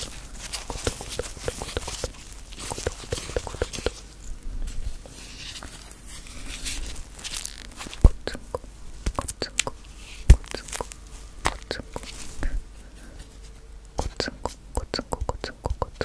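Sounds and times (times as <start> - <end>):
rubber gloves rubbing and clicking: 0.0 - 16.0.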